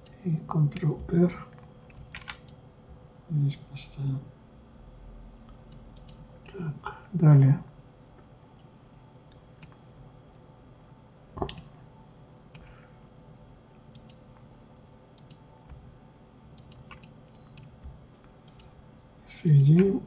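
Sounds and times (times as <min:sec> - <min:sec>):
faint steady hum: 0:00.0 - 0:20.0
mouse and keyboard clicks: 0:16.6 - 0:17.8, 0:18.5 - 0:18.7.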